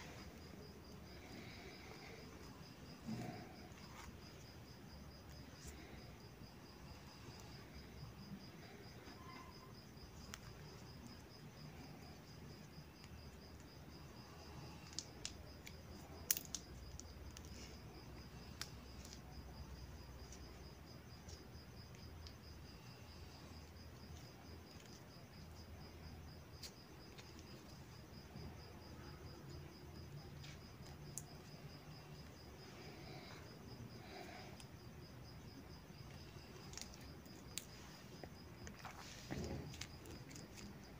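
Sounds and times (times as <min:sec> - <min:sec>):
crickets chirping: 0:00.0 - 0:40.9.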